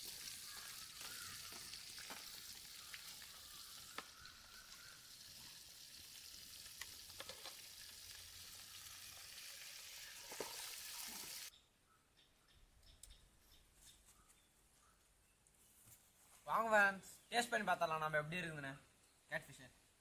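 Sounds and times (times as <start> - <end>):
fish sizzling in hot oil: 0.0 - 11.5.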